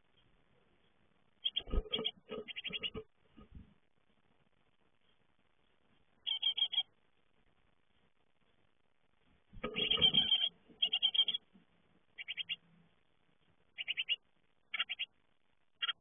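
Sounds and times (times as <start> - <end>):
nestlings begging calls: 1.4 - 3.1, 6.2 - 6.9, 9.6 - 11.5, 12.2 - 12.6, 13.7 - 15.2, 15.8 - 16.0.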